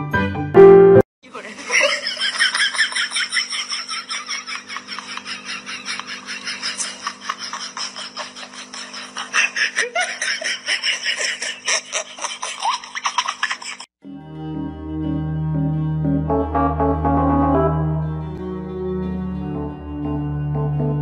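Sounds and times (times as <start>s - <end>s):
piano music: 0.0s - 1.0s, 14.0s - 21.0s
person giggling: 1.4s - 13.9s.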